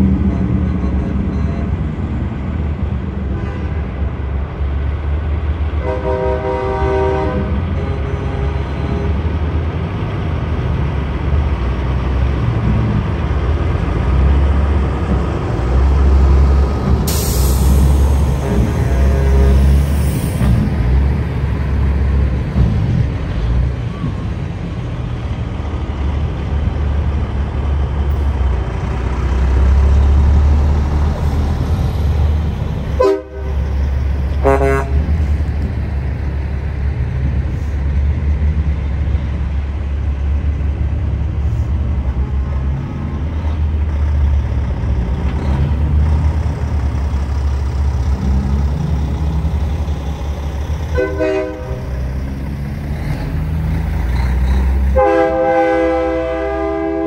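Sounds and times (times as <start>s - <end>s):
truck engines rumbling: 0.0s - 57.0s
truck horn blasts: 5.8s - 9.2s, 18.4s - 19.9s, 33.0s - 33.7s, 34.4s - 35.1s, 50.9s - 52.0s, 54.9s - 57.0s.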